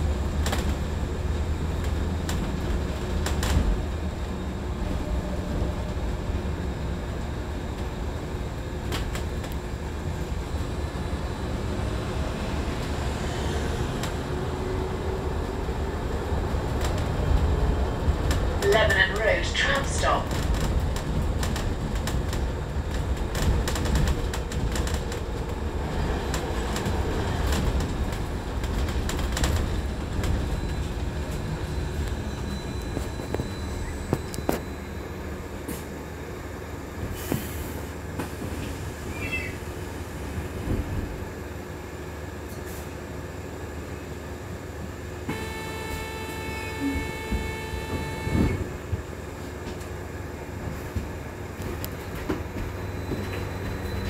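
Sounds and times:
bus road rumble: 0:00.0 - 0:54.0
high electric whine: 0:45.3 - 0:48.7.

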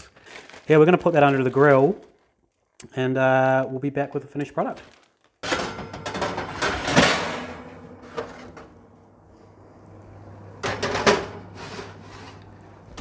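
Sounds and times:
oven rack and bowls clattering: 0:05.4 - 0:08.9, 0:10.6 - 0:12.4.

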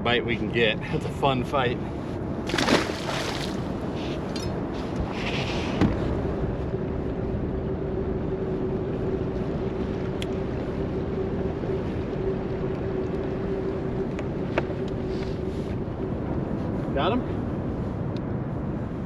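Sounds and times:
wind: 0:00.0 - 0:19.0
water current: 0:02.5 - 0:03.7.

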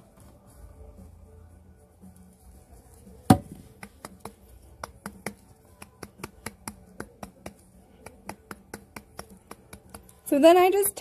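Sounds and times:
loud knock on a vase: 0:03.3 - 0:03.8
fingers tapping a vase: 0:03.3 - 0:10.3.

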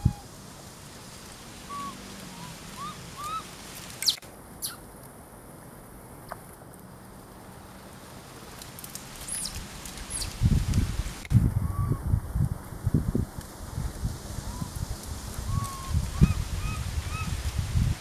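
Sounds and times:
monkey squeaks: 0:04.0 - 0:04.8
thuds and rustling of palm fronds: 0:08.4 - 0:11.4.

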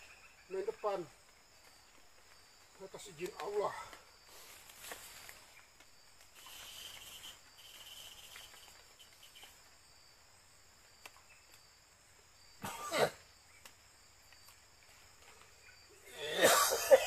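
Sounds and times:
crickets buzzing: 0:00.0 - 0:17.0
shrill insect trill: 0:00.0 - 0:17.0
man's short throaty sound: 0:16.1 - 0:17.0.

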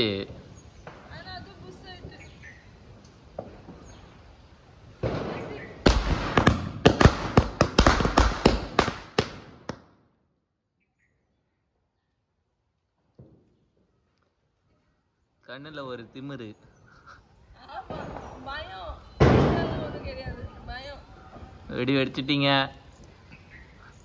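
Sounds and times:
firecracker fuse fizzing: 0:00.0 - 0:09.8
firecrackers banging: 0:00.2 - 0:04.1, 0:05.0 - 0:10.0, 0:17.6 - 0:22.2.

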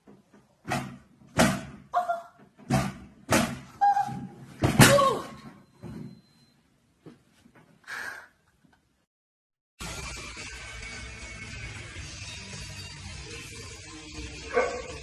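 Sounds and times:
exercise bike thumping floor: 0:00.0 - 0:06.4.

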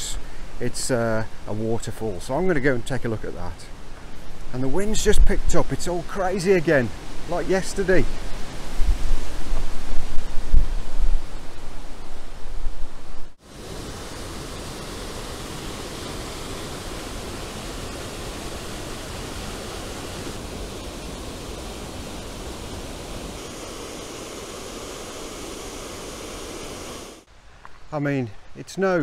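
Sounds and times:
wind buffeting microphone: 0:06.9 - 0:25.8
waterfall pouring over rocks: 0:13.4 - 0:27.3.

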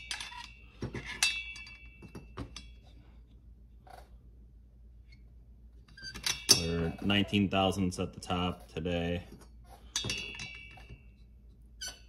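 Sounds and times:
metal clinks and taps: 0:00.0 - 0:03.0, 0:09.3 - 0:11.2.

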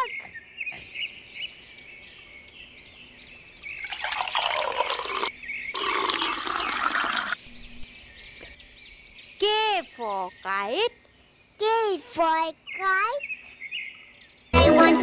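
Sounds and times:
juice pouring into glasses: 0:03.6 - 0:07.4.

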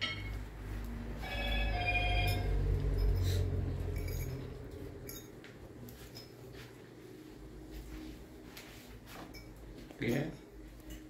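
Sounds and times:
kitchenware clinking: 0:00.0 - 0:00.5, 0:01.5 - 0:06.6.

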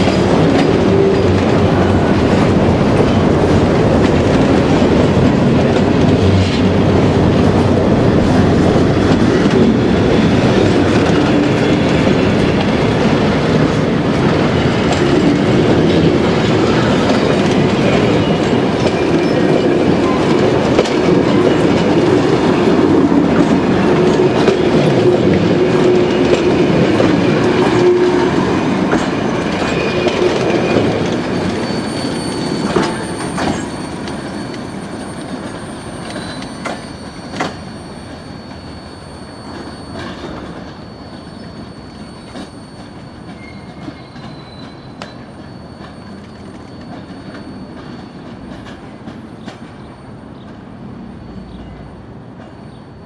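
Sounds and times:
train rolling rumble: 0:00.0 - 0:53.0
faint thin wheel squeal: 0:31.6 - 0:48.2.

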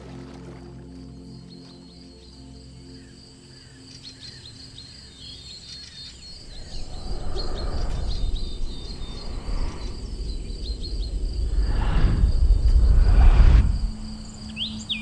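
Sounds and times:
birds chirping: 0:01.0 - 0:15.0
wind rumbling on microphone: 0:06.3 - 0:15.0.

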